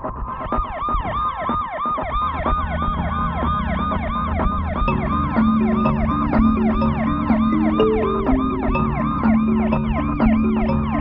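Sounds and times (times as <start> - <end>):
ambulance siren yelping: 0.6 - 11.0
low sustained music notes: 4.9 - 11.0.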